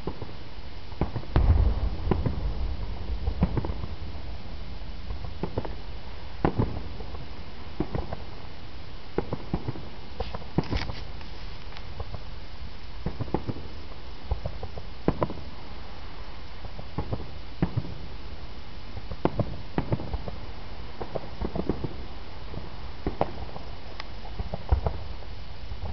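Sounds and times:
distant fireworks popping: 1.0s - 8.5s, 21.0s - 25.9s
low rumble: 1.3s - 8.7s.

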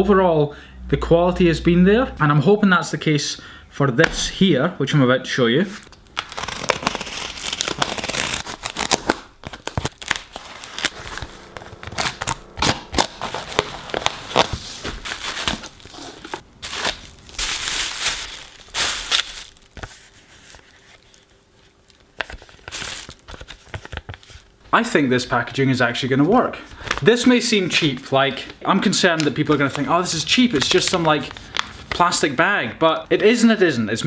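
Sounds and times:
tape ripping: 5.9s - 21.2s
knife cutting packing tape: 6.2s - 17.5s
plastic liner rustling: 6.2s - 21.3s.

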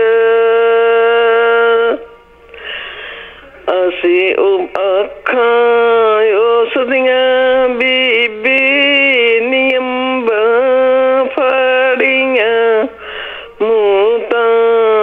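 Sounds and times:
woman singing unaccompanied: 0.0s - 2.2s, 3.6s - 15.0s
singer breathing: 2.5s - 3.6s, 12.9s - 13.6s.

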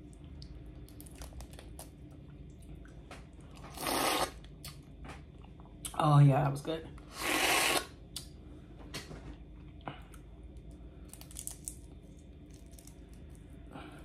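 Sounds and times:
shells cracking while peeled: 10.1s - 13.5s.

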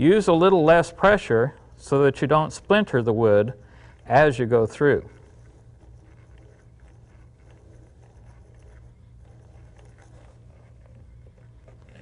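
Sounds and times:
steady low hum: 0.0s - 12.0s
hand drill scratching through wood: 2.3s - 12.0s.

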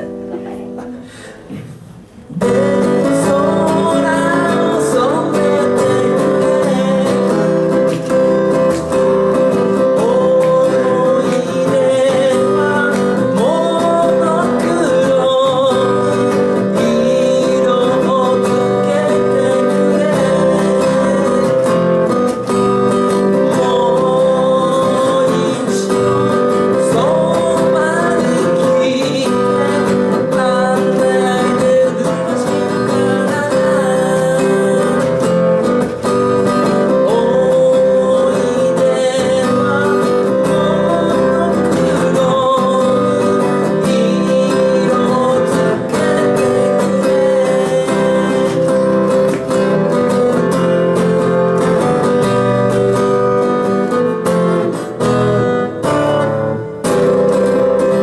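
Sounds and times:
acoustic guitar strumming: 0.0s - 58.0s
man singing: 2.2s - 58.0s.

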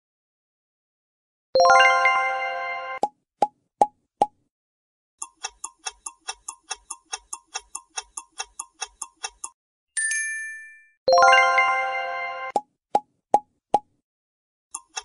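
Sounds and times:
clock ticking: 5.2s - 9.6s, 14.7s - 15.0s.

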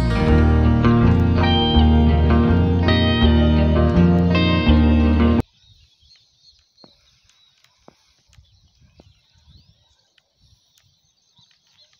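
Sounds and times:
guitar background music: 0.0s - 5.4s
low bumps: 0.0s - 5.4s
distant bird calls: 4.4s - 11.9s.

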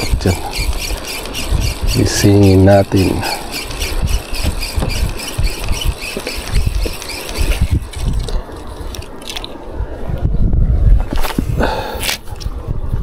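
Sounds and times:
fishing reel ticking: 0.0s - 9.4s.

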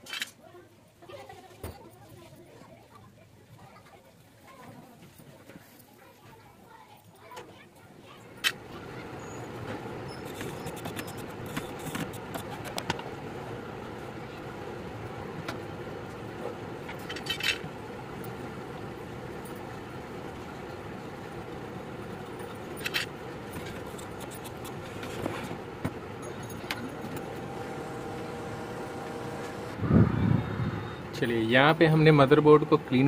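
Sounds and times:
machine hum: 8.4s - 33.0s.

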